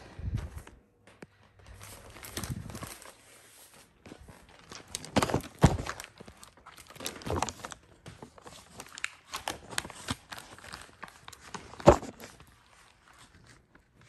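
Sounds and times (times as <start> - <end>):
footsteps: 0.0 - 4.8.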